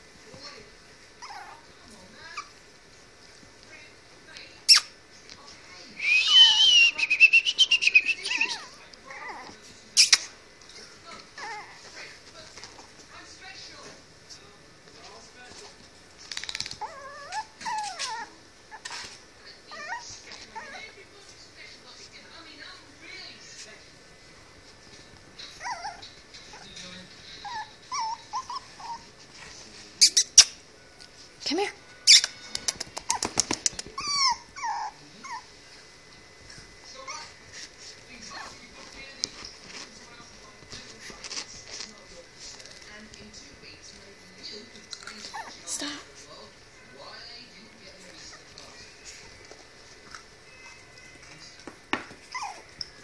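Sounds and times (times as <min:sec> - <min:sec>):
puppy whining and whimpering: 0:01.2 - 0:01.7, 0:06.0 - 0:09.6, 0:11.4 - 0:12.0, 0:16.6 - 0:21.0, 0:25.4 - 0:30.4, 0:33.0 - 0:35.8, 0:36.9 - 0:37.5, 0:45.1 - 0:46.0, 0:52.1 - 0:53.0.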